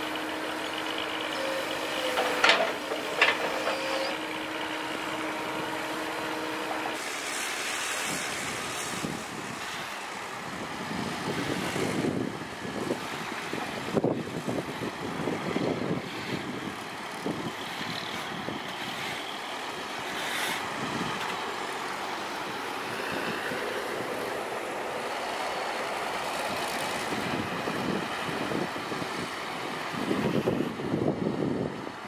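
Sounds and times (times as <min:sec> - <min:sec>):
heavy trucks passing: 0:00.0 - 0:32.0
wind on microphone: 0:10.5 - 0:19.0, 0:26.5 - 0:32.0.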